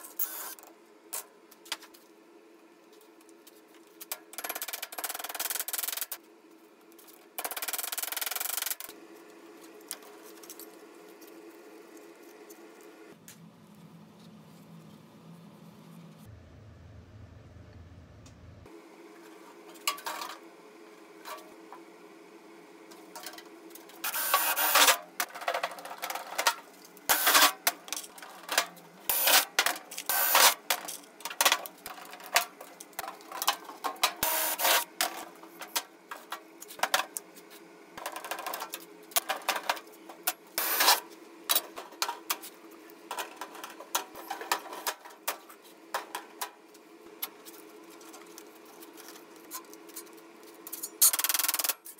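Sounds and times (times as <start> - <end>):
steady low hum: 9.0 - 18.9.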